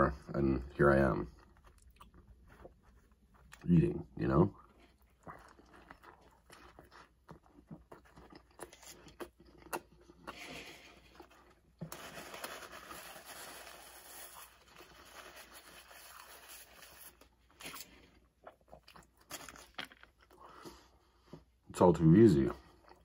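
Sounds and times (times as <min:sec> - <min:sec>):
chewing food: 0:00.1 - 0:12.2, 0:14.4 - 0:21.6, 0:22.4 - 0:23.0
paper wrapper crinkling: 0:11.8 - 0:17.9.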